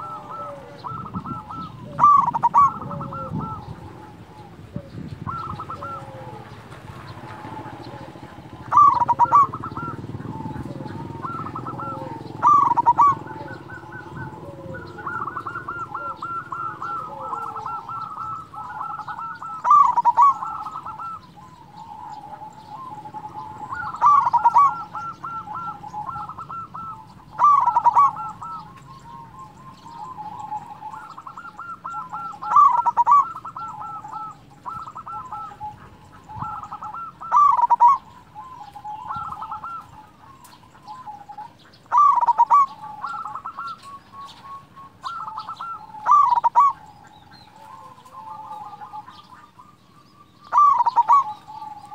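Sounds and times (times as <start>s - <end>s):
dove cooing: 0.0s - 51.9s.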